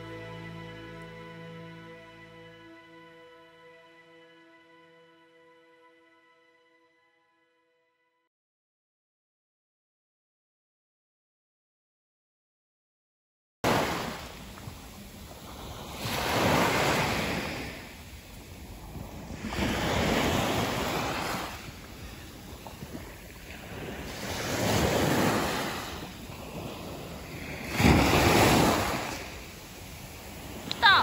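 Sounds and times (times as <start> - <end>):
small waves washing onto beach: 13.7 - 31.0.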